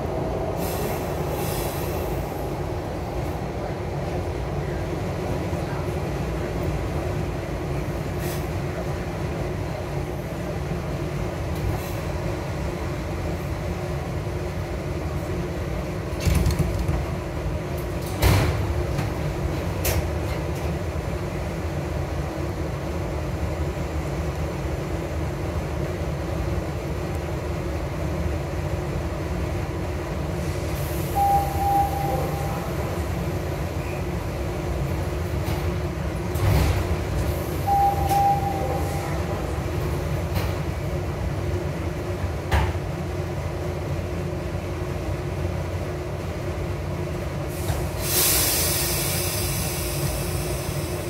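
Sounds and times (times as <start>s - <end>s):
subway car equipment humming: 0.0s - 51.0s
air hiss: 0.6s - 2.4s, 47.5s - 51.0s
short steady tone: 31.1s - 32.7s, 37.6s - 39.2s.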